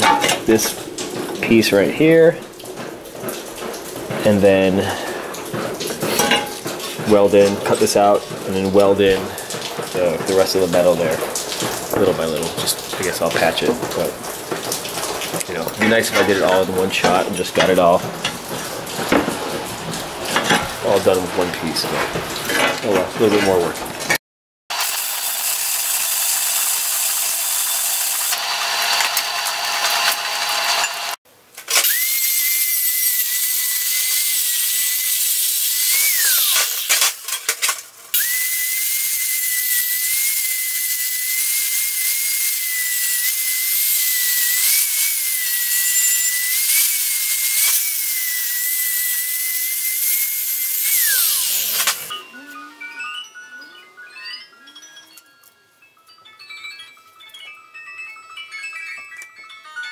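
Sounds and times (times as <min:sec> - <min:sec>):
welding arc crackling: 0:24.0 - 0:52.2
angle grinder grinding steel: 0:24.7 - 0:55.6.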